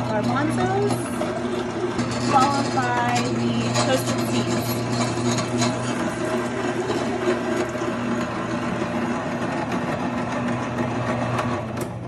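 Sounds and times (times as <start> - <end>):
clicks and crackles of grinding: 0.0 - 8.6
meat grinder motor hum: 0.0 - 12.0.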